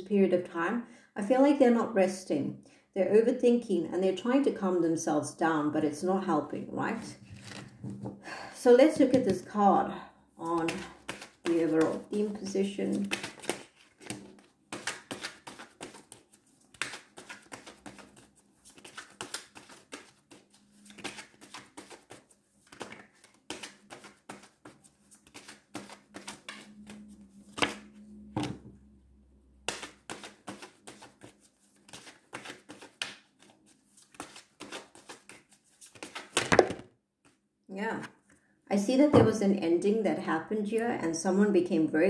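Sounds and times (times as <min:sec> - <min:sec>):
cards being shuffled: 0:07.2 - 0:08.1, 0:10.5 - 0:28.6, 0:29.6 - 0:37.4.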